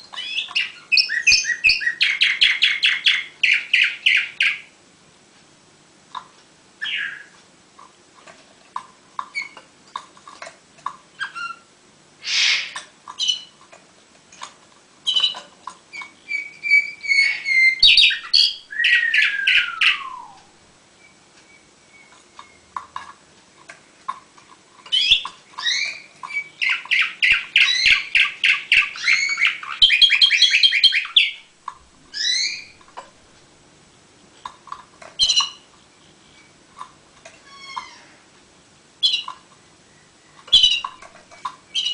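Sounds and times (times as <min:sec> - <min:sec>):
canary singing trills: 0:00.0 - 0:04.8, 0:06.8 - 0:07.4, 0:09.2 - 0:09.6, 0:11.1 - 0:13.6, 0:15.0 - 0:22.8, 0:24.8 - 0:31.5, 0:32.1 - 0:32.8, 0:35.2 - 0:36.6, 0:39.0 - 0:41.1, 0:41.7 - 0:41.9.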